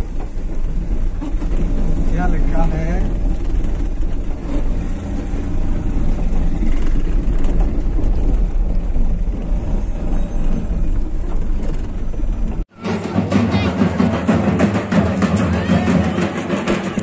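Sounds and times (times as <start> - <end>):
vehicle engine and road rumble: 0.0 - 12.8.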